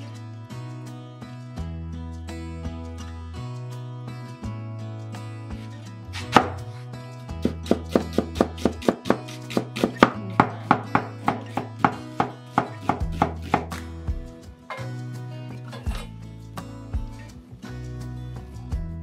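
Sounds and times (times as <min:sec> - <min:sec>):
background music: 0:00.0 - 0:19.0
knife slicing on wooden board: 0:06.2 - 0:06.7, 0:07.4 - 0:13.8.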